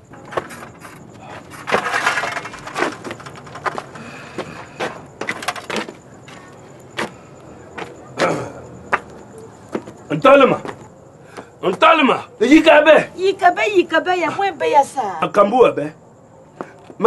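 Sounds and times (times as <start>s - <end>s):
knocks and clatters: 0.0s - 6.4s.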